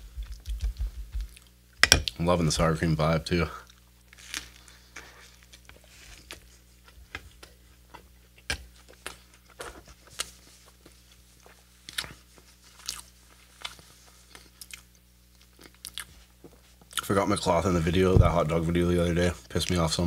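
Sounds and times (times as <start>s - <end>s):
crunchy chewing and biting: 3.6s - 17.1s.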